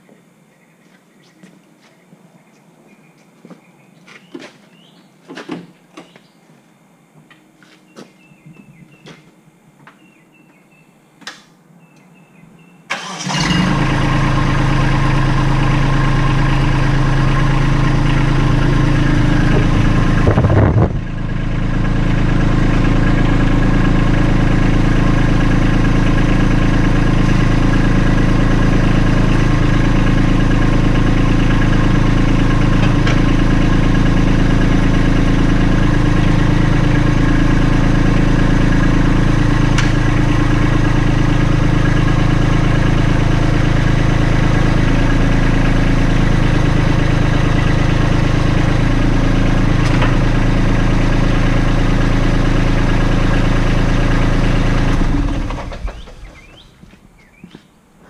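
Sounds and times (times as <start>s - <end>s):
tractor diesel engine idling: 12.9s - 57.3s.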